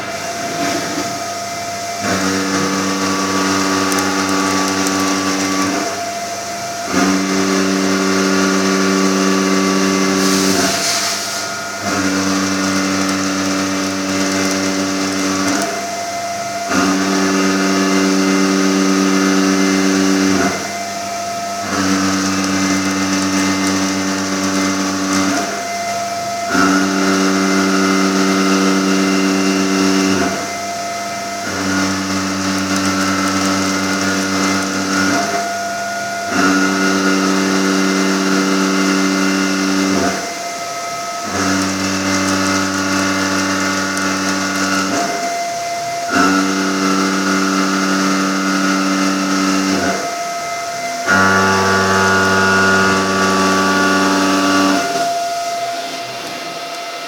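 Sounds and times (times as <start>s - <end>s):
high-pitched machine whine: 0.0s - 57.0s
milling cutter buzzing on steel: 0.0s - 57.0s
coolant spray hiss: 10.2s - 11.6s.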